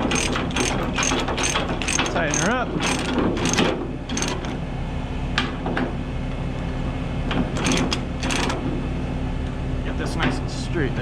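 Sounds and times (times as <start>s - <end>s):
chain and ratchet clanking: 0.0s - 4.6s, 7.6s - 8.6s.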